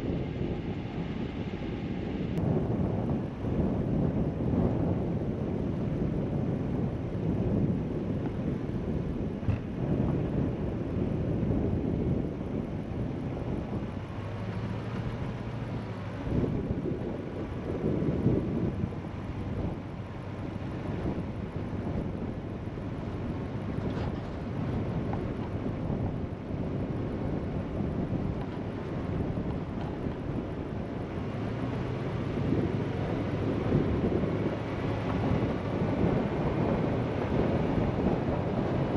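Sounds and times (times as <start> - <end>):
vehicle driving on gravel road: 0.0 - 38.9.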